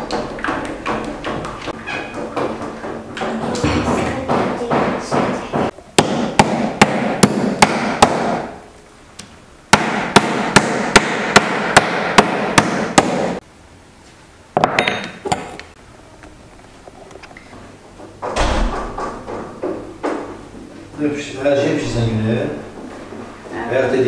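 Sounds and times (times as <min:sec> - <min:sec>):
meat mallet pounding on wood: 0:00.0 - 0:08.5, 0:09.7 - 0:13.4.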